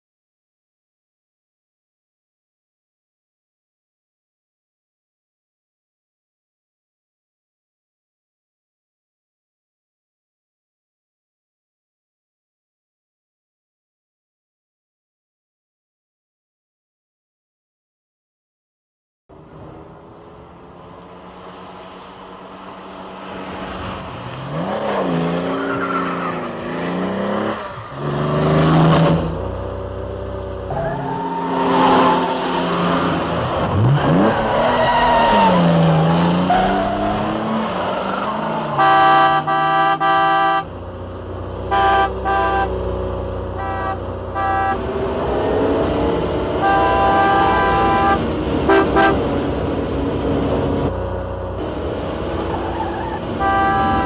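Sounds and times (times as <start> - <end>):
sports car engines revving: 19.3 - 54.0
car horn: 38.2 - 40.7, 41.6 - 45.0, 46.5 - 49.4, 52.5 - 54.0.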